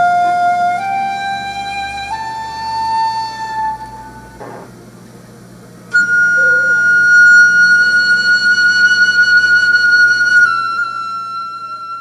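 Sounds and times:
flute-like high note: 5.9 - 12.0.

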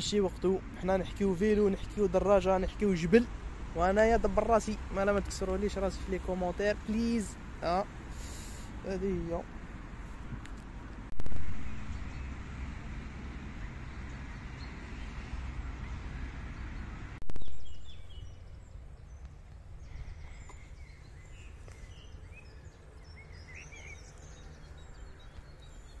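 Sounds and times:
steady rushing noise: 8.1 - 13.8
small birds chirping: 11.4 - 26.0.

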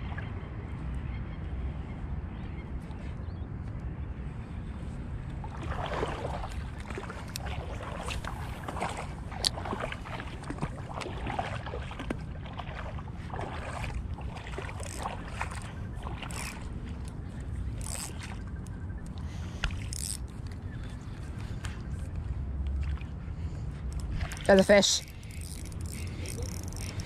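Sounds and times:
shallow water lapping: 4.2 - 27.0
small splashes and clicks: 5.5 - 23.1, 23.8 - 27.0.

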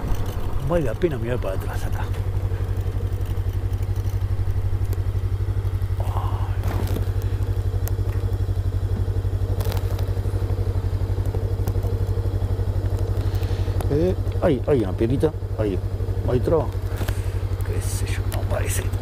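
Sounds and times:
motorcycle engine idling: 0.0 - 19.0.

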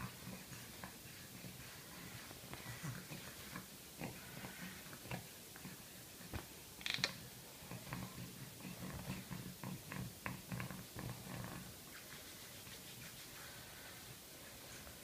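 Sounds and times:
hands rubbing skin: 11.0 - 15.0.

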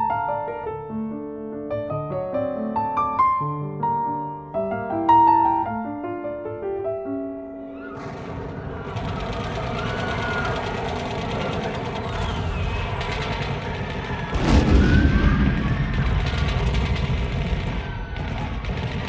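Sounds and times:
film score music: 0.0 - 19.0
loud explosion boom: 8.0 - 19.0
low rumble: 8.0 - 19.0
rapid gunfire-like crackling: 8.0 - 19.0.

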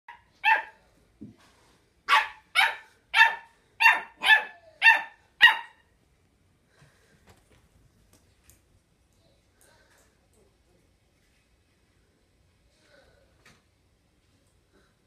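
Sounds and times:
puppy yapping: 0.4 - 0.8, 2.1 - 5.8.

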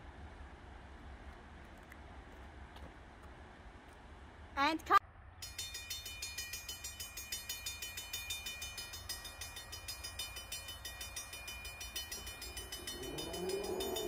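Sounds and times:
train rumbling: 0.0 - 14.0
rapid high-pitched pulsing: 5.4 - 14.0
train horn: 12.8 - 14.0.

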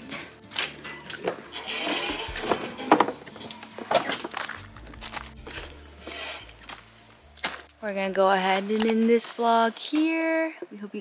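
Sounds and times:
footsteps on gravel: 2.3 - 10.2.

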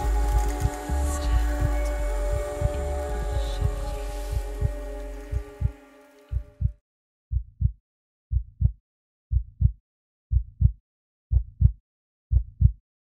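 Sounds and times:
heartbeat lub-dub: 0.0 - 12.8.

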